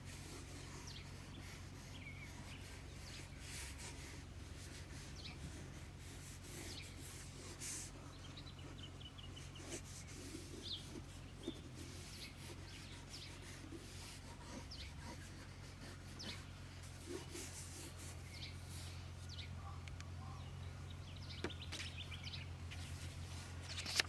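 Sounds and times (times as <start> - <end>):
steady low hum: 0.0 - 24.0
birds chirping: 0.1 - 24.0
pencil scratching on paper: 9.4 - 18.2.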